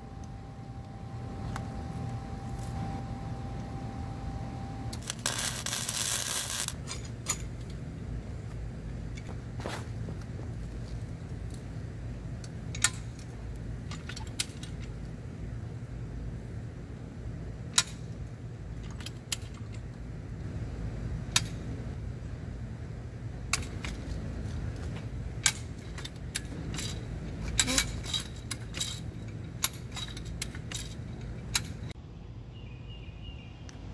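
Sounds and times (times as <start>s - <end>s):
low hum: 0.0s - 13.9s
metal jack clicking and clanking: 25.4s - 31.9s.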